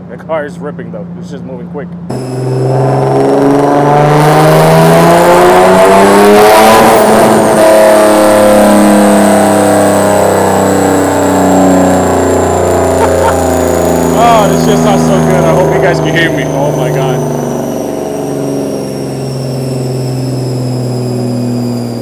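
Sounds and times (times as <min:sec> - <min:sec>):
thin high whine: 0:02.1 - 0:03.7, 0:10.2 - 0:22.0
car engine revving on dyno: 0:02.1 - 0:22.0.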